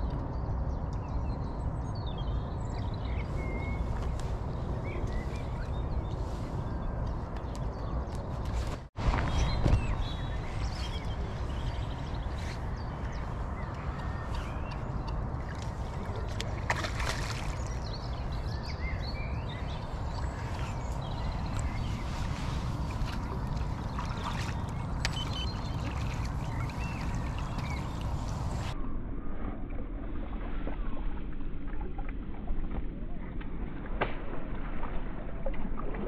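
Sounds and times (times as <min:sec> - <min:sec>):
small birds chirping: 0:00.0 - 0:28.8
wind rumbling on microphone: 0:00.0 - 0:36.0.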